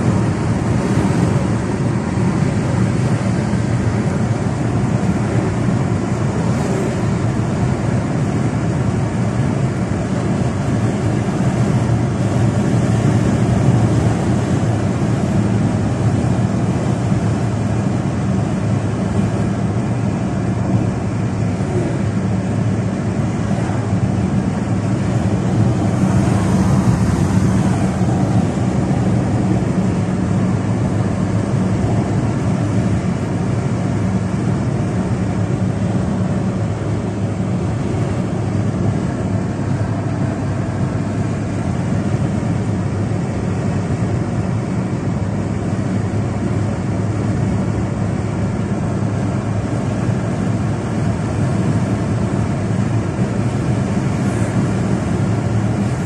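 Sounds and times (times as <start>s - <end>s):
car cabin drone at highway speed: 0.0s - 56.0s.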